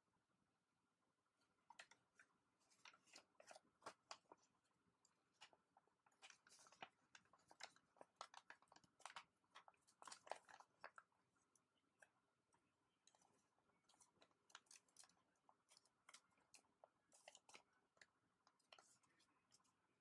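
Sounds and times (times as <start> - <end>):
paper folding crinkles: 1.4 - 20.0.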